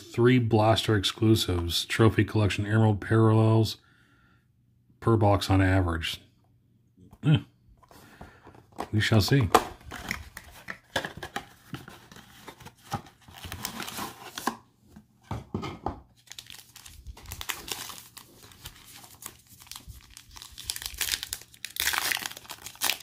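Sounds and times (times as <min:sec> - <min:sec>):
foil pack crinkling and tearing: 0:16.2 - 0:23.0.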